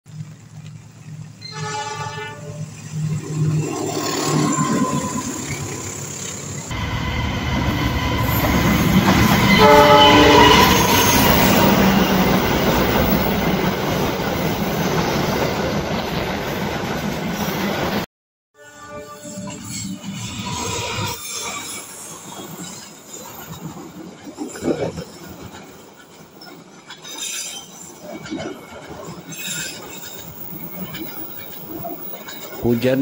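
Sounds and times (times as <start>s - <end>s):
train horn: 1.4s - 2.7s, 9.3s - 11.4s, 18.6s - 19.6s
train wheels clattering over rails: 7.5s - 18.0s.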